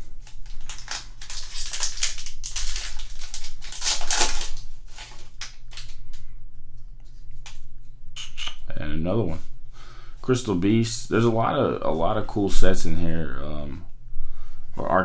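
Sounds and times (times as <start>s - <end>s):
foil wrapper crinkling and tearing: 0.1s - 6.2s.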